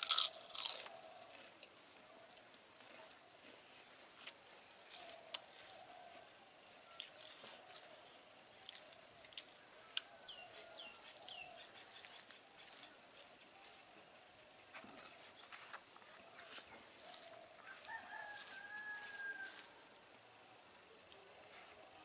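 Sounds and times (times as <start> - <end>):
chewing: 0.0 - 6.2, 6.9 - 8.0, 8.6 - 20.3
fingers mixing rice: 11.1 - 14.4, 15.0 - 20.3.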